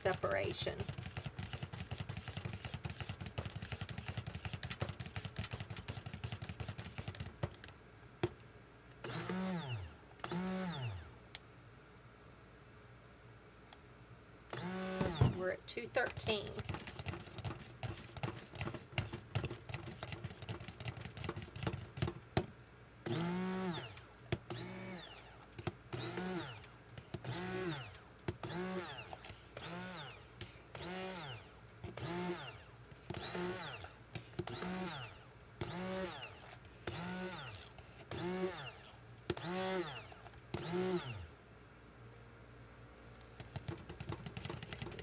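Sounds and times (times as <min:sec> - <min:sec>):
stick blender motor whine: 0:09.0 - 0:11.1, 0:14.5 - 0:15.4, 0:23.0 - 0:41.3.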